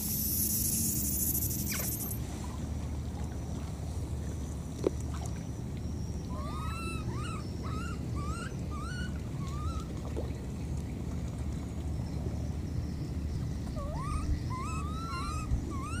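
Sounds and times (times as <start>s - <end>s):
baby monkey crying: 13.8s - 16.0s.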